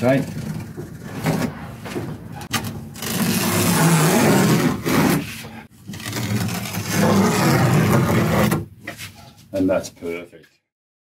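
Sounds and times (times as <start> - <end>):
masking tape ripping off: 3.0 - 5.3.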